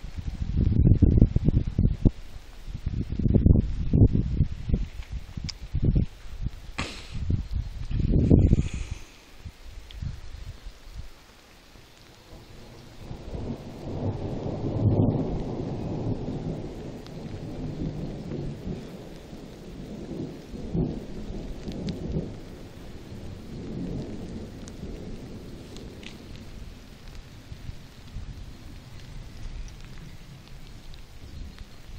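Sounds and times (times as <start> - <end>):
rolling thunder: 12.2 - 31.9.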